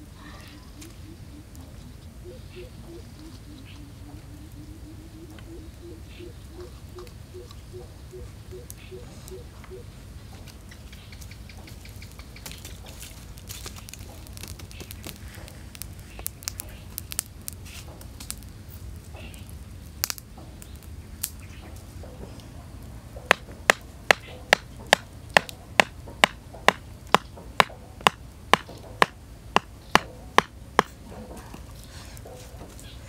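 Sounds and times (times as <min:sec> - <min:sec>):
campfire crackling and popping: 0:00.0 - 0:33.0
wooden mallet knocking on stick: 0:23.2 - 0:31.0.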